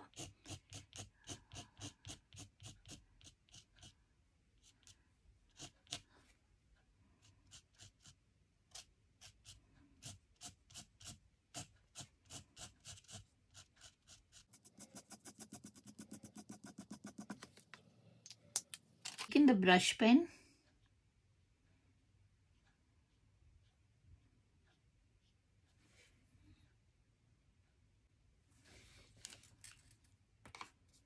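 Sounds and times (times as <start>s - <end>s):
marker scratching on paper: 0.1s - 4.0s, 7.5s - 17.7s.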